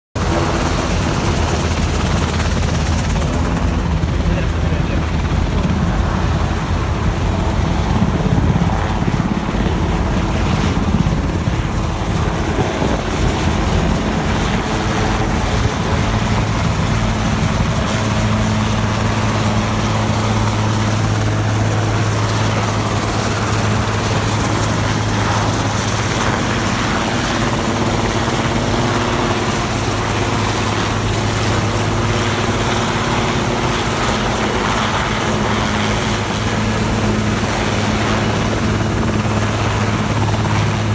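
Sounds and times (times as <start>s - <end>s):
helicopter rotor and engine: 0.2s - 40.9s.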